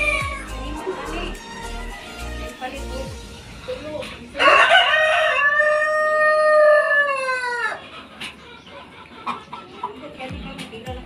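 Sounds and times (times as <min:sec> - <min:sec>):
rooster crowing: 0:04.4 - 0:07.8.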